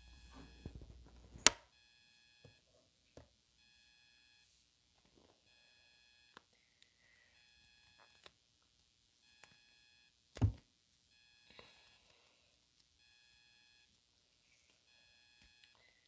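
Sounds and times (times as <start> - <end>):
faint electronic beeping: 0.0 - 2.7, 3.6 - 4.5, 5.5 - 8.3, 9.2 - 10.2, 11.1 - 16.0.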